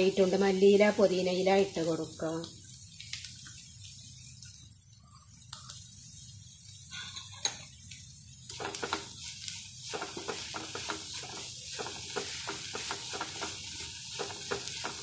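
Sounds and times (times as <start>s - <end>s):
onions sizzling in a pan: 0.0s - 15.0s
wooden spatula scraping a pan: 8.6s - 15.0s.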